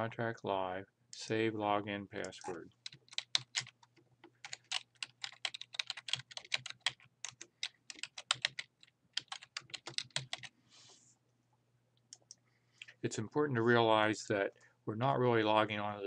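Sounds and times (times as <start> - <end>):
computer keyboard typing: 2.8 - 10.5.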